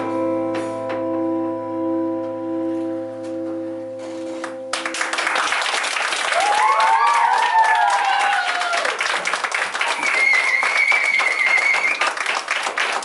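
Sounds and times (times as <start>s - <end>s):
keyboard and acoustic guitar chord: 0.0s - 5.1s
people clapping: 4.4s - 13.0s
children cheering: 5.8s - 13.0s.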